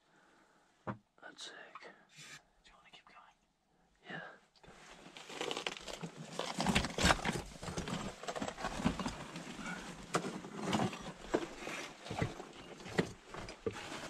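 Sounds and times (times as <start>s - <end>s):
footsteps on rocky floor: 6.6s - 14.0s.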